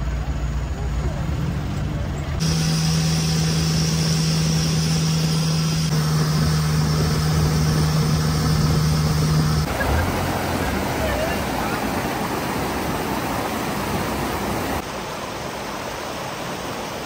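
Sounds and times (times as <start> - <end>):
boat engine running: 0.0 - 14.8
water rushing along hull: 0.0 - 17.0
stream rushing over rocks: 7.8 - 17.0.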